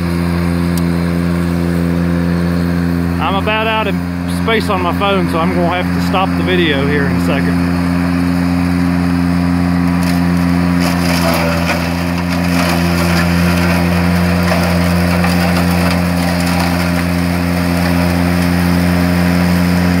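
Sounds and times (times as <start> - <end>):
mower deck chopping grass: 0.0 - 20.0
tractor engine running under load: 0.0 - 20.0
crackle of stems being cut: 9.8 - 18.8.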